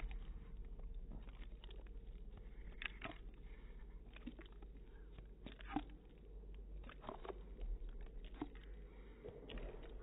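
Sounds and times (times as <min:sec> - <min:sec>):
dog chewing wet smacks: 0:00.0 - 0:10.0.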